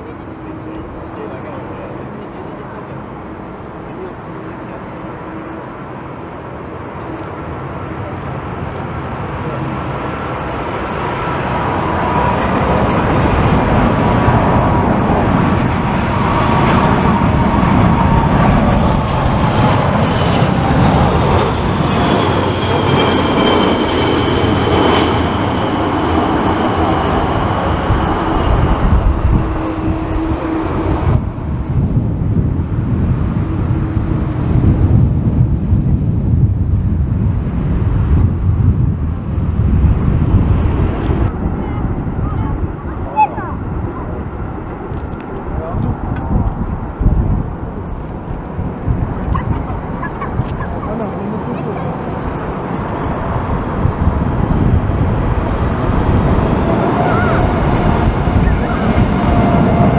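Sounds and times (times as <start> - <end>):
jet engine whine: 0.0 - 59.9
jet engines roaring: 0.0 - 59.9
wind buffeting microphone: 0.0 - 59.9.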